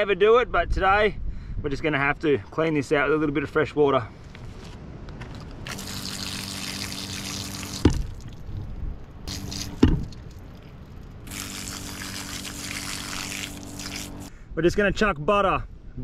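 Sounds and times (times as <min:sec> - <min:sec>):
water spraying from shower head: 0:05.7 - 0:08.1, 0:09.3 - 0:10.2, 0:11.2 - 0:14.3
low steady hum: 0:05.7 - 0:14.4
sharp knocks: 0:09.8 - 0:10.1.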